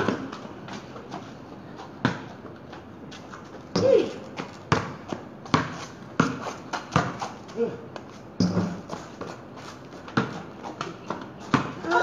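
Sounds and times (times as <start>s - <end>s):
basketball bouncing on concrete: 2.0s - 2.6s, 3.7s - 7.4s, 8.4s - 9.4s, 10.0s - 12.0s.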